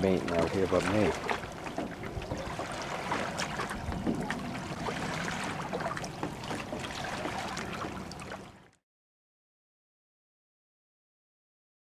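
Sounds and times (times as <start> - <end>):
fish splashing at the surface: 0.0 - 8.7
shallow water sloshing: 0.0 - 8.8.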